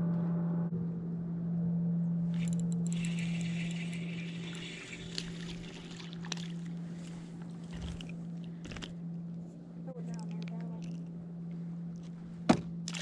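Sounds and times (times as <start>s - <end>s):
steady low hum: 0.0s - 13.0s
fishing reel whirring and clicking: 2.3s - 6.8s.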